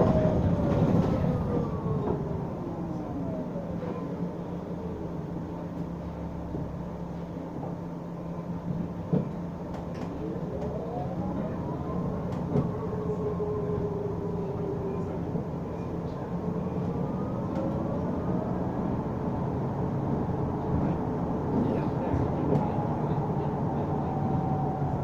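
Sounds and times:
bus drivetrain whine: 0:00.0 - 0:25.0
low road drone: 0:10.0 - 0:25.0.

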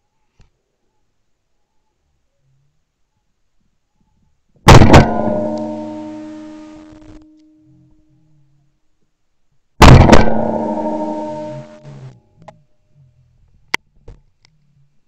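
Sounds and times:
shotgun blasts: 0:04.7 - 0:06.8, 0:09.8 - 0:11.9.

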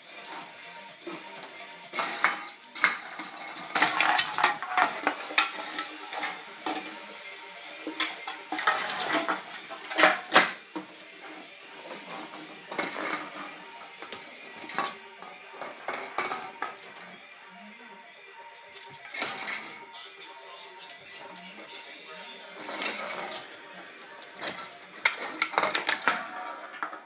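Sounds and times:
can clattering on tile floor: 0:01.1 - 0:07.0, 0:07.8 - 0:11.0, 0:11.9 - 0:17.0, 0:18.8 - 0:19.8, 0:22.6 - 0:23.6, 0:24.2 - 0:27.0.

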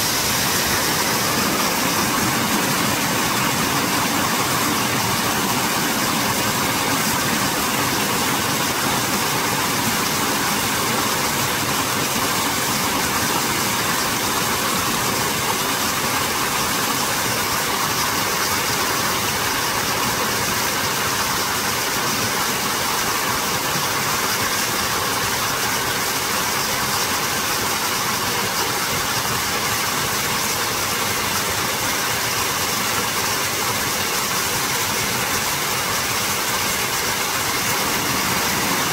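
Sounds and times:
mountain stream rushing: 0:00.0 - 0:38.9.

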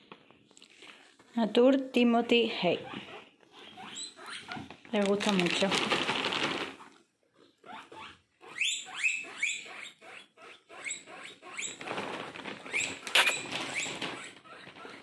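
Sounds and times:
guinea pigs squeaking: 0:02.3 - 0:15.0
sharp crackle: 0:11.8 - 0:14.9.

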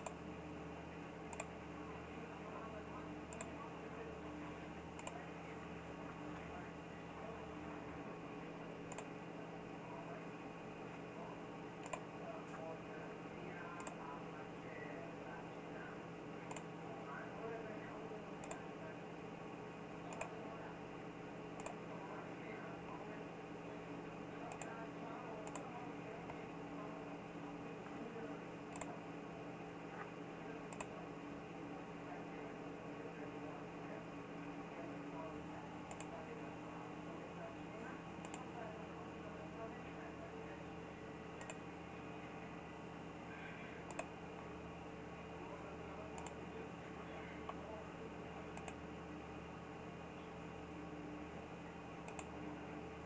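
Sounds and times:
electrical hum and hiss: 0:00.0 - 0:53.0
computer mouse clicks: 0:01.3 - 0:01.6, 0:03.3 - 0:03.6, 0:05.0 - 0:05.2, 0:08.9 - 0:09.1, 0:11.8 - 0:12.1, 0:13.7 - 0:14.0, 0:16.5 - 0:16.7, 0:18.4 - 0:18.6, 0:20.1 - 0:20.4, 0:21.6 - 0:21.9, 0:24.5 - 0:24.8, 0:25.4 - 0:26.4, 0:28.7 - 0:29.0, 0:30.7 - 0:31.0, 0:35.9 - 0:36.2, 0:38.2 - 0:38.5, 0:41.4 - 0:41.6, 0:43.8 - 0:44.2, 0:46.1 - 0:46.4, 0:48.5 - 0:48.8, 0:52.0 - 0:52.4.

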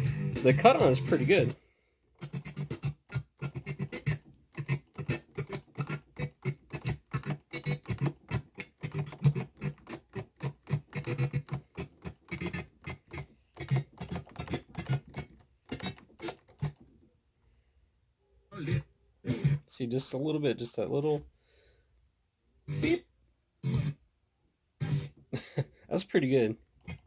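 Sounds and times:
dj scratch cutting: 0:00.0 - 0:01.6, 0:02.2 - 0:16.8, 0:18.6 - 0:19.7, 0:22.7 - 0:23.0, 0:23.6 - 0:24.0, 0:24.8 - 0:25.2.

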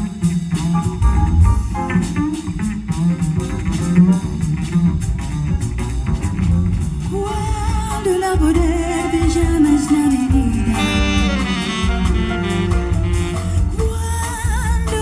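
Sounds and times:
piano: 0:00.0 - 0:15.0
plucked double bass solo: 0:00.0 - 0:15.0
woman singing: 0:07.1 - 0:12.4, 0:13.2 - 0:15.0.

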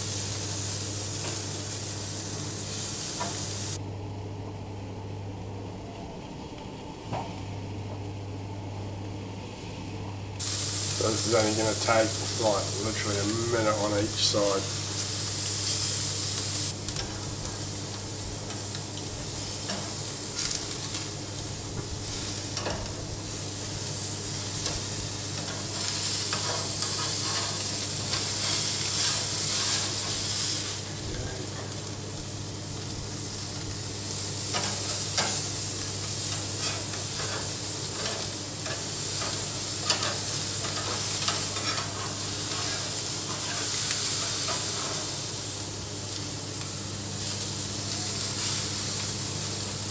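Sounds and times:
fish sizzling on a grill: 0:00.0 - 0:03.8, 0:10.4 - 0:49.9
low steady hum: 0:03.2 - 0:28.3.

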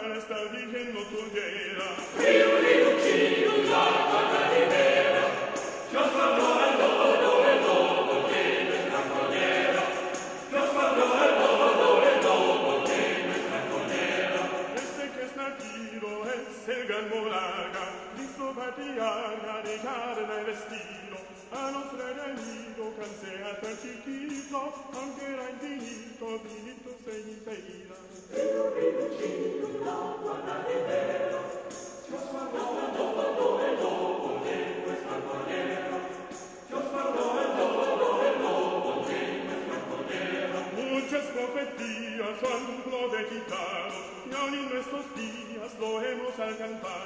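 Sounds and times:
choir-like voices singing: 0:01.2 - 0:16.6, 0:28.2 - 0:47.0.

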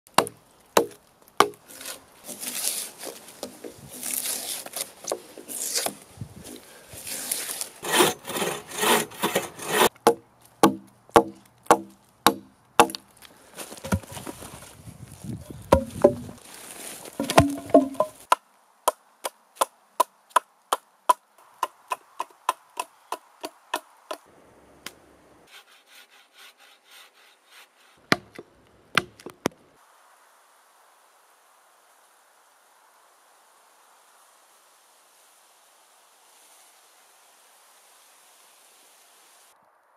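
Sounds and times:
axe chopping into wood: 0:00.1 - 0:02.6, 0:09.3 - 0:13.0, 0:15.7 - 0:16.4, 0:17.2 - 0:18.4, 0:28.1 - 0:29.5
drawknife stripping bark: 0:00.1 - 0:13.1.

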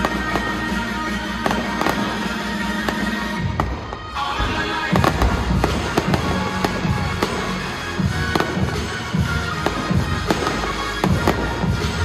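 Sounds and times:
fireworks bangs: 0:00.0 - 0:12.0
loud music through sound system: 0:00.0 - 0:12.0.

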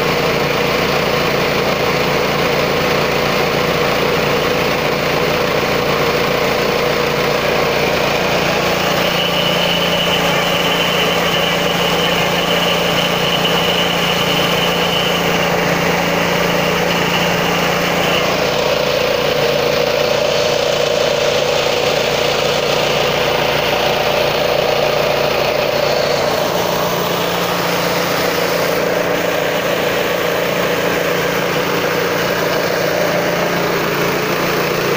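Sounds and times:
grinding mill machine hum: 0:00.0 - 0:34.9
thin high whine: 0:06.6 - 0:34.5.

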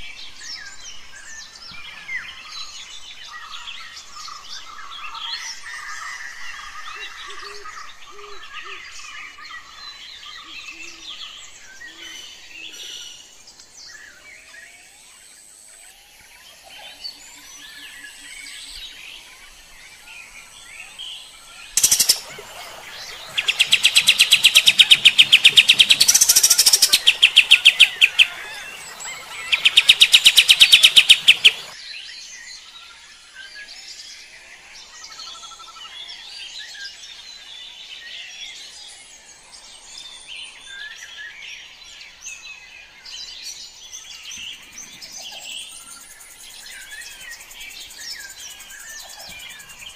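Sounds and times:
bird soft chirping: 0:20.2 - 0:31.8
bird rapid repeated notes: 0:21.8 - 0:31.8.

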